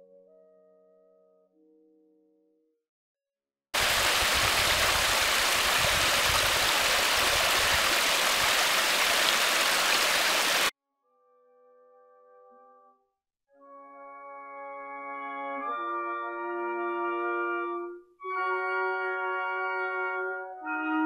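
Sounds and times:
stream trickling over rocks: 0:03.8 - 0:10.7.

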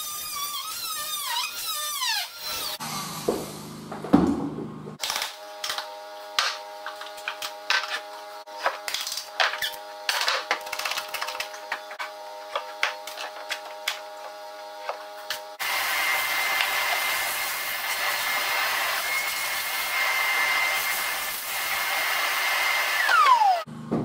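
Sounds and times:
vacuum whine and suction: 0:02.7 - 0:04.0, 0:15.6 - 0:23.8.

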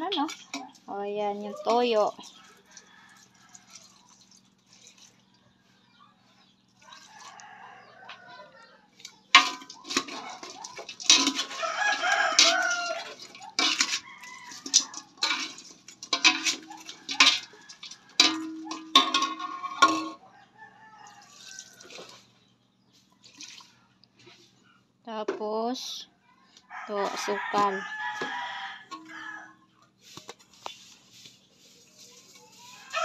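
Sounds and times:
chickens calling: 0:00.0 - 0:24.9, 0:26.2 - 0:33.0
rooster crowing: 0:02.4 - 0:03.8, 0:06.8 - 0:08.9, 0:11.3 - 0:15.2, 0:16.4 - 0:18.9, 0:20.0 - 0:22.1, 0:26.6 - 0:29.6, 0:32.6 - 0:33.0.

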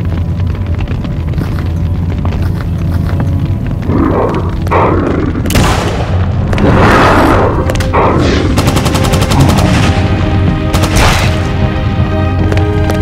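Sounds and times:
gunshot blasts: 0:05.5 - 0:06.4, 0:10.7 - 0:11.5.

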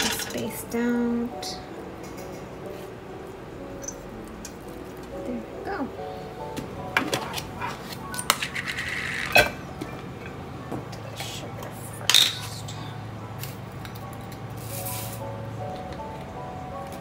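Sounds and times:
metal spoon clinking on plastic: 0:00.0 - 0:00.5.

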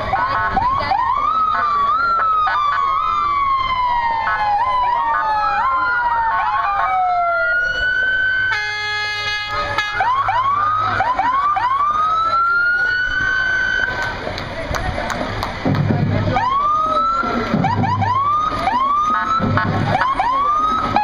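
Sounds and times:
siren yelps: 0:00.0 - 0:14.1, 0:16.3 - 0:21.0
emergency vehicle sirens wailing: 0:00.0 - 0:21.0
horn blast: 0:08.5 - 0:10.2, 0:17.5 - 0:20.1.

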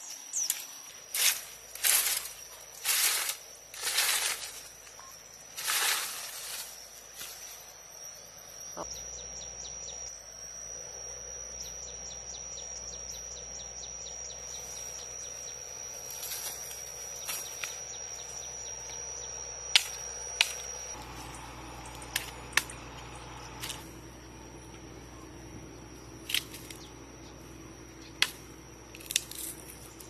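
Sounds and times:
insects trilling: 0:00.0 - 0:30.0
machete striking bamboo: 0:19.8 - 0:20.7, 0:22.1 - 0:22.8.

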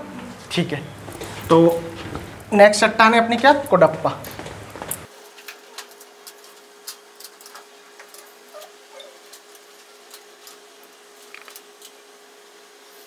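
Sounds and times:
steady low hum: 0:00.0 - 0:05.1.

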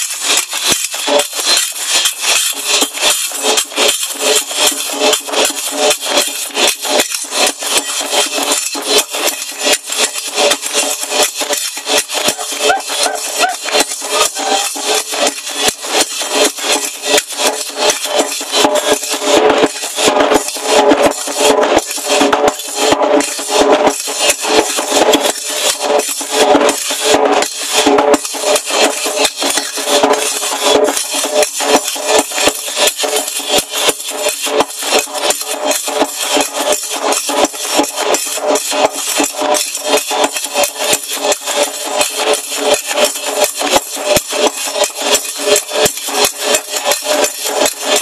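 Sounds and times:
iron castanets clacking: 0:00.0 - 0:48.0
hand claps: 0:10.6 - 0:16.8.

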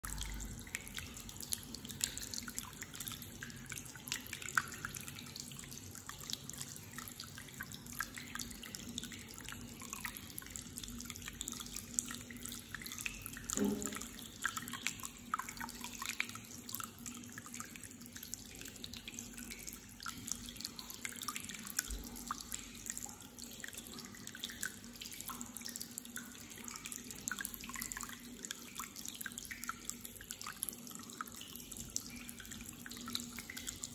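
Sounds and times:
water trickling and dripping: 0:00.0 - 0:33.9
thump: 0:13.6 - 0:14.0.

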